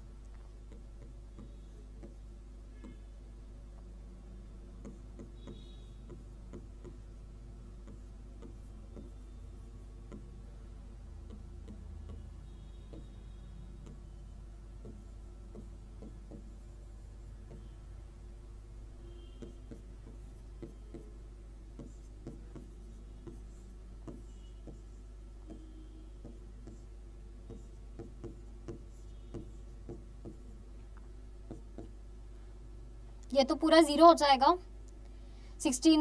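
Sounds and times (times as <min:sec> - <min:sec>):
stylus tapping on screen: 0:00.2 - 0:03.0, 0:04.8 - 0:07.2, 0:07.8 - 0:10.5, 0:11.2 - 0:17.8, 0:19.2 - 0:32.0.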